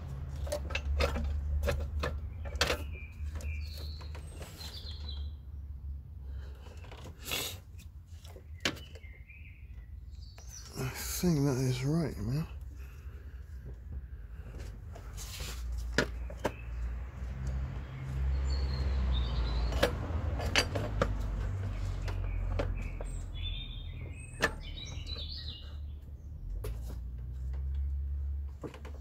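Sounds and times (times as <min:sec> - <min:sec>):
birds chirping: 0:02.0 - 0:05.7, 0:08.2 - 0:15.2, 0:15.8 - 0:26.6.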